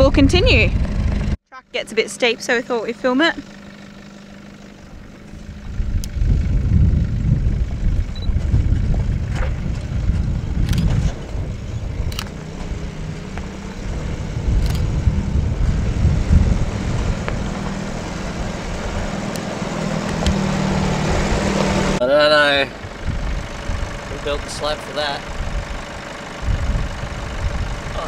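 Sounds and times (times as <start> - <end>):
heavy uneven rumble: 0.0 - 28.0
vehicle engine running low: 0.0 - 28.0
sharp clicks: 10.6 - 11.1, 12.1 - 12.4, 14.6 - 14.9, 19.3 - 20.4.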